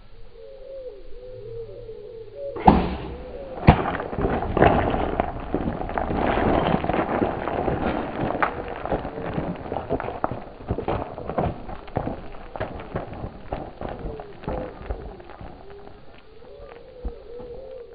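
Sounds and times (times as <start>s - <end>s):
sharp cracks: 2.6s - 16.9s
brush crackling: 2.6s - 17.9s
hooves clattering on rock: 2.6s - 17.9s.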